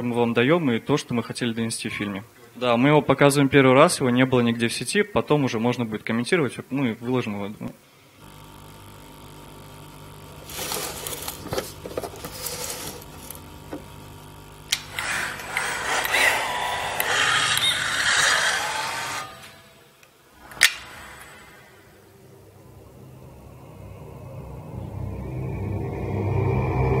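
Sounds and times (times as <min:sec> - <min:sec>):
steady low hum: 0:08.1 - 0:27.0
single sharp click: 0:20.5 - 0:20.9.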